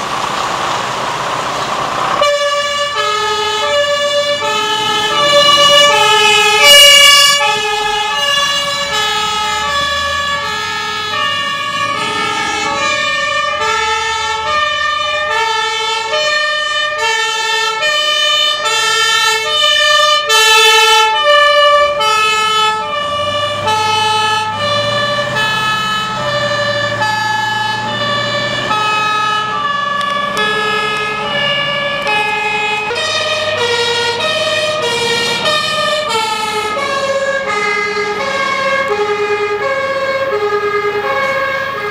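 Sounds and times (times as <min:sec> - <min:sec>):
diesel engine rumbling: 0:00.0 - 0:41.9
two-tone fire engine sirens: 0:00.0 - 0:41.9.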